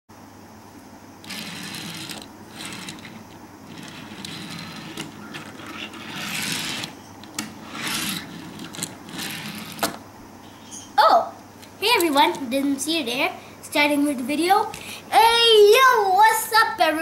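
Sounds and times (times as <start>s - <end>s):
toy car wheels rolling on wood: 1.2s - 10.0s.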